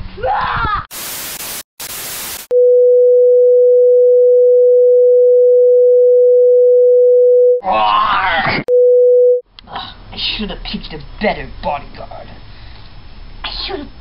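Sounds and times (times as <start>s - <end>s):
static hiss: 0.9s - 2.5s.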